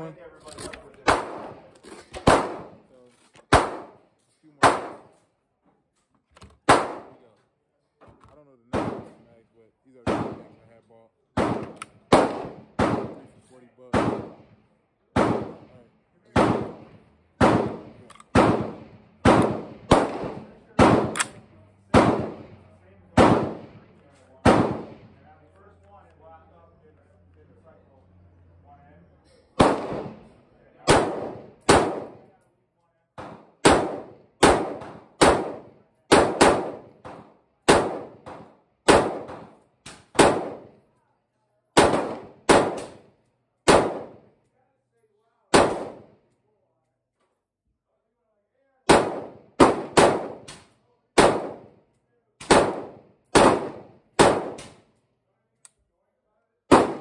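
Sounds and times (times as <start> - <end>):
gunshots echoing under roof: 1.0 - 5.2, 6.6 - 7.4, 8.6 - 25.4, 29.6 - 32.4, 33.1 - 40.8, 41.8 - 44.4, 45.5 - 46.4, 48.8 - 55.0, 56.7 - 57.0.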